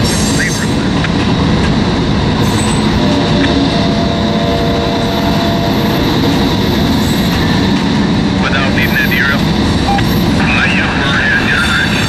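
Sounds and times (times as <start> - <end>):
train wheels rumbling on rail: 0.0 - 12.0.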